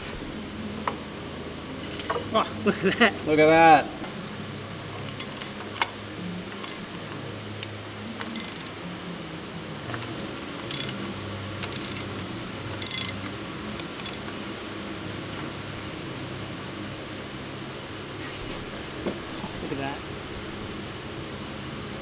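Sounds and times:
steady low hum: 0:00.0 - 0:22.0
metallic tool clicks: 0:08.2 - 0:08.8, 0:09.9 - 0:11.0, 0:11.6 - 0:14.4
ratchet bursts: 0:08.4 - 0:08.8, 0:10.7 - 0:11.0, 0:11.6 - 0:12.2.

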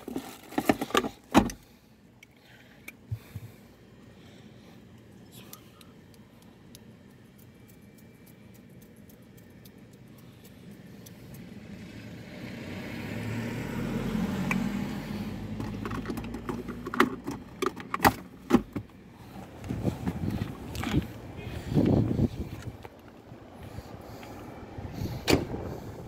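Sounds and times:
handling rustle: 0:00.0 - 0:01.3.

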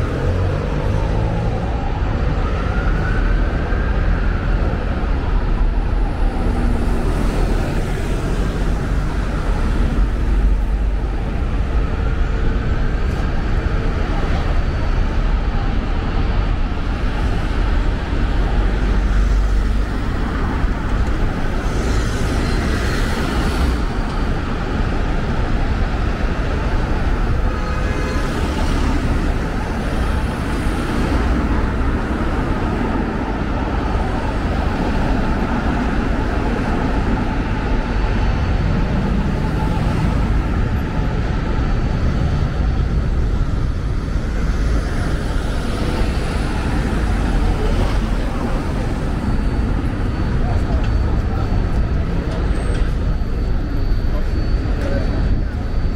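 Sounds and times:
traffic rumble: 0:00.0 - 0:55.9.

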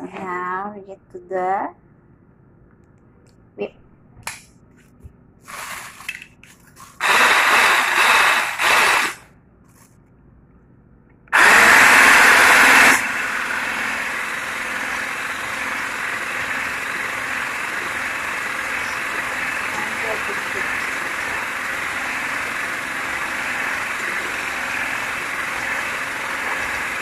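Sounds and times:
loud rough noise: 0:07.0 - 0:09.2, 0:11.4 - 0:27.0
stick blender whipping cream: 0:07.0 - 0:09.2, 0:11.4 - 0:27.0.

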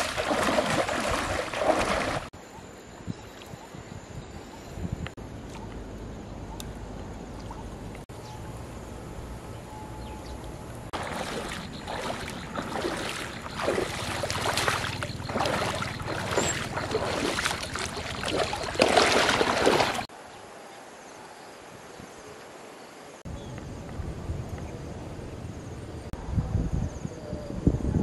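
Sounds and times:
footsteps splashing through water: 0:00.0 - 0:02.3, 0:10.9 - 0:20.1.

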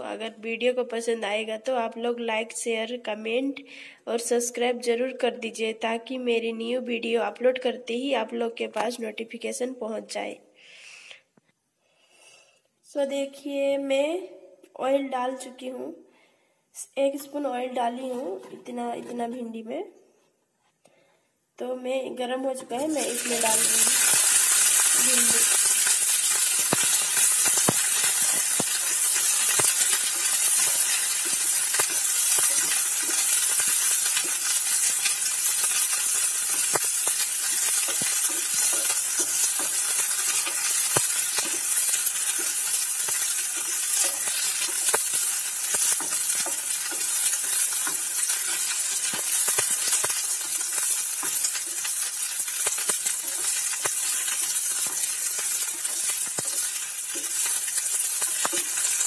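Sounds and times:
okra sizzling in oil: 0:22.7 - 0:59.0
spatula clicking and scraping: 0:23.4 - 0:59.0.

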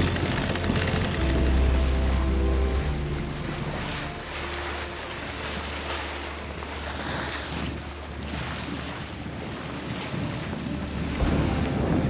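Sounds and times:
steady low hum: 0:00.0 - 0:07.0
water rushing along hull: 0:00.0 - 0:12.0
wind buffeting microphone: 0:05.1 - 0:12.0.

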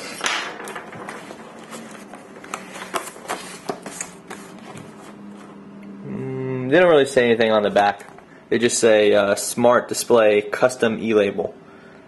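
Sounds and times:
cardboard and plastic wrapping crackling: 0:00.0 - 0:05.0.

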